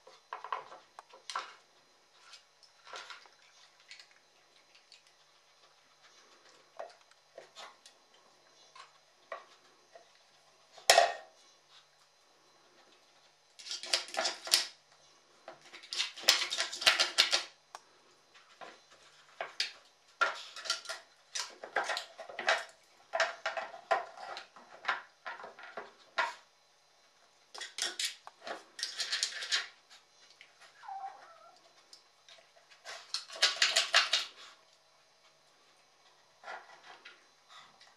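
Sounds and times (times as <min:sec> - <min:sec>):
dog whining: 0:30.7 - 0:31.7.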